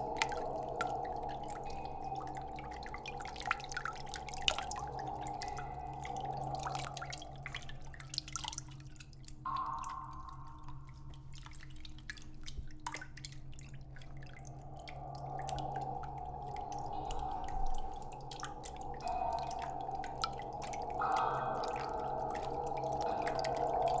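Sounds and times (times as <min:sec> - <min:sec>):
low drone: 0:00.0 - 0:08.5, 0:14.4 - 0:24.0
water drips: 0:00.0 - 0:24.0.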